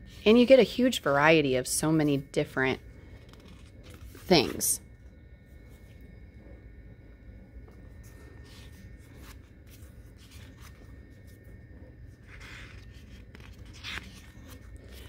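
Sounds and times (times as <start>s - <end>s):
paper pages rustling: 3.1s - 4.6s, 8.4s - 11.4s, 12.2s - 15.0s.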